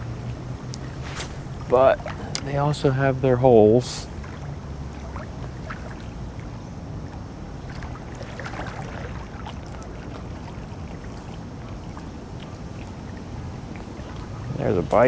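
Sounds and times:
wind buffeting microphone: 0.0s - 2.7s
choppy lake water: 0.0s - 15.0s.

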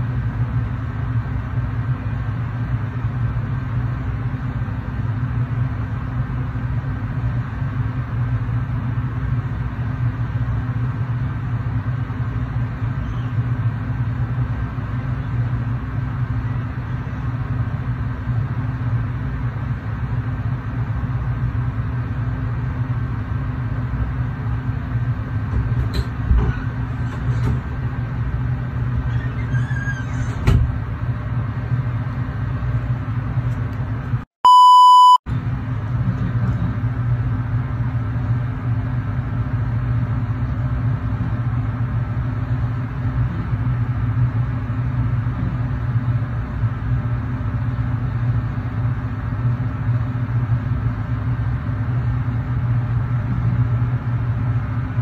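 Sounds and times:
machine hum with high whine: 0.0s - 55.0s
short electronic beep: 34.4s - 35.2s.

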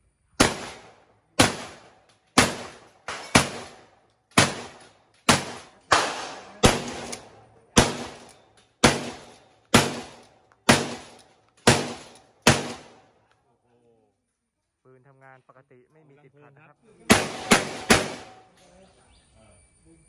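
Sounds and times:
shotgun shots: 0.4s - 13.1s, 17.1s - 18.5s.

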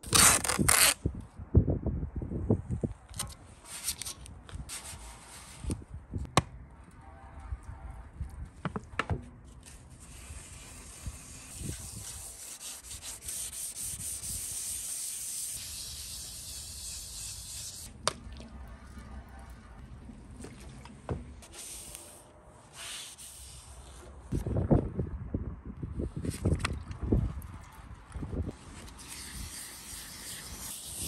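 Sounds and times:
wet sandpaper rubbing: 3.6s - 5.7s, 9.6s - 17.9s, 21.4s - 24.4s, 28.6s - 31.0s.

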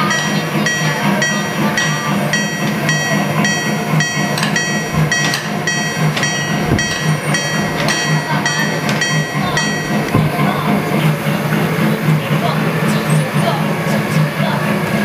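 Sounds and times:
railway crossing bell ringing: 0.0s - 15.0s.

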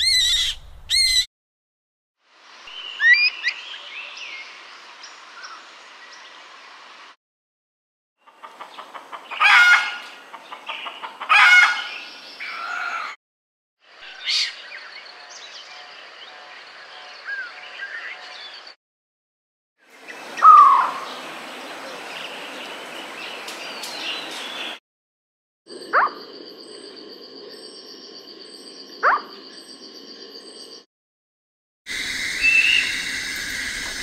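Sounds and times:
wild birds calling: 0.0s - 1.3s, 8.3s - 13.2s, 19.9s - 24.8s, 31.9s - 34.0s
steady forest hiss: 2.2s - 7.2s, 19.9s - 24.8s, 31.9s - 34.0s.

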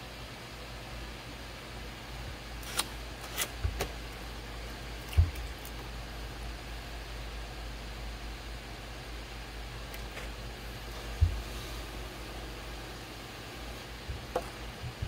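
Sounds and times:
potter's wheel humming: 1.6s - 15.0s.

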